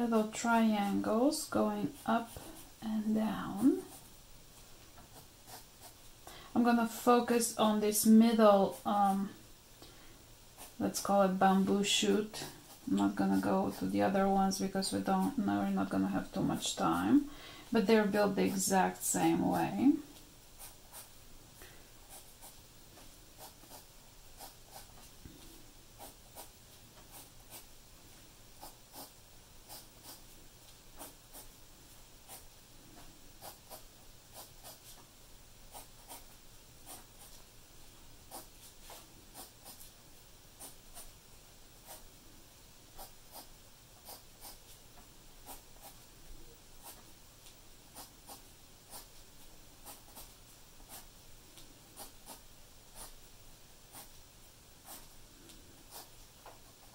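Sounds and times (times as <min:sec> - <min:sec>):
pencil scratching on paper: 0:05.0 - 0:06.0, 0:10.6 - 0:10.8, 0:20.6 - 0:21.1, 0:22.1 - 0:22.6, 0:23.4 - 0:25.1, 0:26.0 - 0:27.7, 0:28.6 - 0:30.3, 0:31.0 - 0:31.5, 0:32.3 - 0:32.5, 0:33.4 - 0:35.0, 0:35.7 - 0:37.4, 0:38.3 - 0:39.9, 0:40.6 - 0:41.2, 0:41.8 - 0:42.1, 0:43.0 - 0:44.8, 0:45.4 - 0:46.0, 0:46.8 - 0:47.1, 0:47.9 - 0:49.2, 0:49.8 - 0:51.1, 0:51.9 - 0:53.2, 0:53.9 - 0:54.2, 0:54.8 - 0:55.1, 0:55.8 - 0:56.9.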